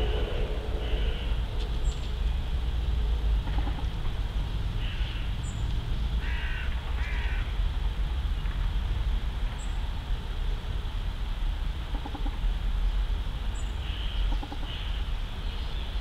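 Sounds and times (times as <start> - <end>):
bird calls: 0.0 - 2.3, 3.4 - 4.0, 4.8 - 7.4, 11.9 - 12.4, 13.5 - 16.0
steady low rumble: 0.0 - 16.0.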